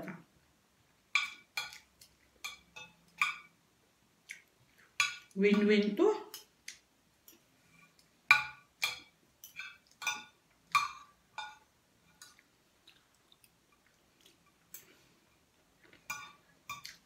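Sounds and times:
cutlery clinking on a plate: 0:08.3 - 0:12.3, 0:16.0 - 0:17.0.

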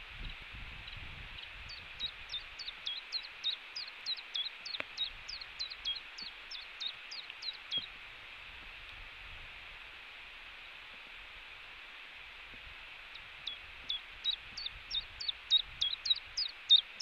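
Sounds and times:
outdoor hiss: 0:00.0 - 0:17.0
small bird singing: 0:00.2 - 0:07.9, 0:13.1 - 0:17.0.

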